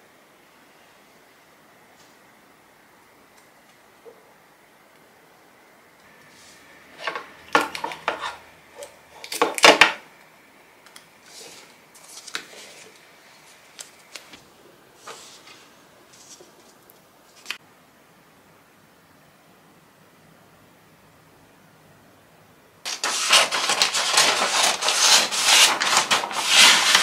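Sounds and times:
paper rustling: 11.2 - 14.4, 15.0 - 17.6, 22.9 - 27.0.

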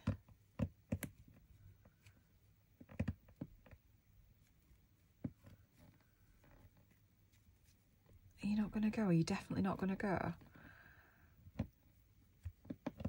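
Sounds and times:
needle and paper threader taps: 0.0 - 1.3.

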